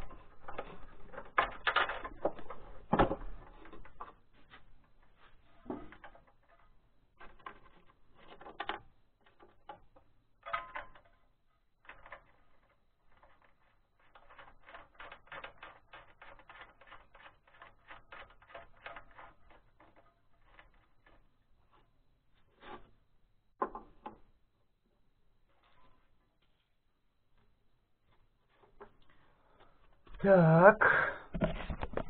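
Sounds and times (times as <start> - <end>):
metallic clicks on bolts and nuts: 7.2 - 20.8.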